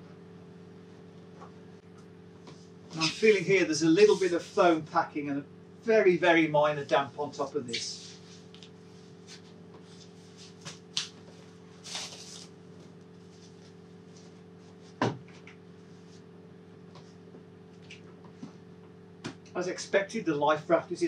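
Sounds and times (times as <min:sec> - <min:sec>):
steady low hum: 0:00.0 - 0:21.0
plastic sheet rustling and crinkling: 0:10.0 - 0:12.6.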